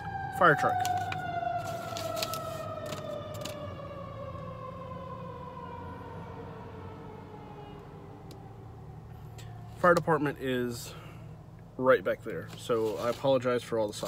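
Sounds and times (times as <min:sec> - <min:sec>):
fire truck siren wailing: 0:00.0 - 0:09.8.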